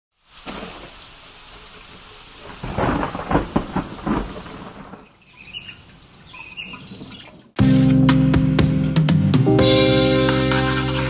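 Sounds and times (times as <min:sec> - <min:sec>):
steady rain: 0:00.1 - 0:06.9
thunder crackling and rumbling: 0:02.3 - 0:07.5.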